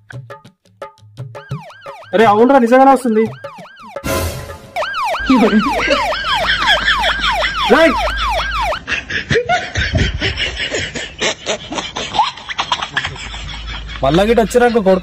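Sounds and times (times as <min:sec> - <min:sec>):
people imitating a siren: 0:01.4 - 0:08.9.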